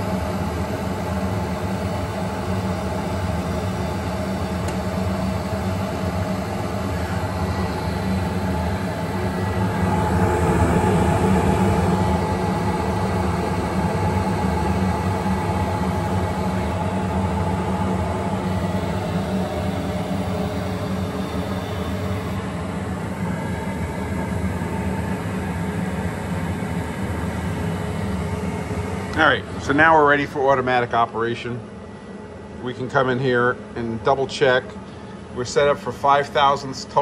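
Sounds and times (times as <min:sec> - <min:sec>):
surface grinder humming: 0:16.1 - 0:22.5.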